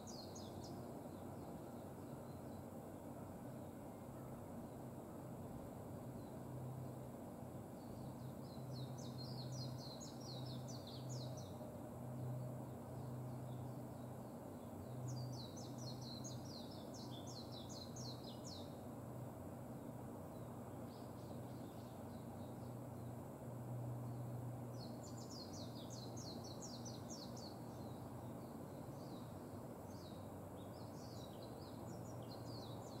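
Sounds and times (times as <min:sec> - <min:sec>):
bird twittering song: 0:00.0 - 0:02.7, 0:07.8 - 0:18.9, 0:19.8 - 0:23.2, 0:24.0 - 0:33.0.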